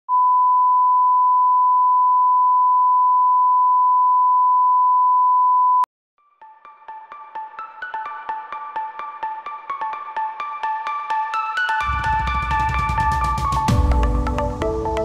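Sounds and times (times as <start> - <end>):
xylophone-like music: 11.6 - 15.0.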